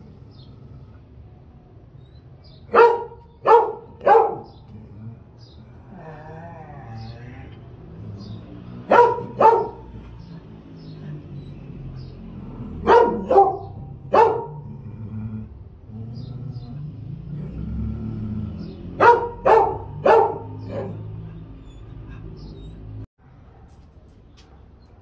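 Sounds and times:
dog barking: 2.7s - 4.6s, 8.8s - 10.2s, 12.8s - 14.6s, 19.0s - 21.4s.

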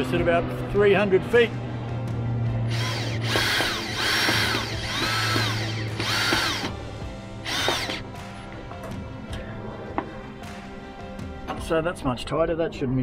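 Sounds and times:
cordless drill driving bolts: 2.7s - 6.8s, 7.4s - 8.1s.

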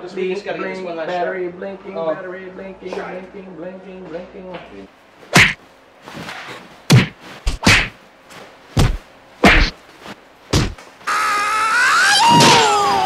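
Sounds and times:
heavy whacks on stuffed bag: 5.4s - 5.6s, 6.9s - 8.0s, 8.8s - 9.8s, 10.5s - 10.8s
high-pitched wavering wail: 11.1s - 13.0s.

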